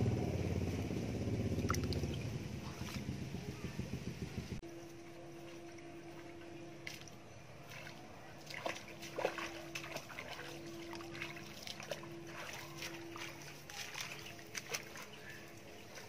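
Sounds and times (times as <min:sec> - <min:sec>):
bare feet splashing in water: 0:05.4 - 0:16.0.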